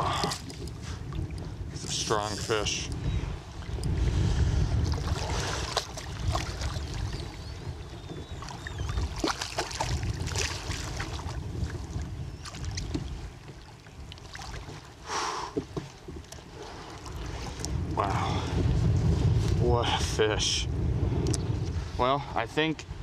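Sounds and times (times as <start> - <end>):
wind on microphone: 0.0 - 14.9, 15.5 - 23.0
water splashing: 4.9 - 7.3, 8.4 - 11.4, 13.5 - 14.9.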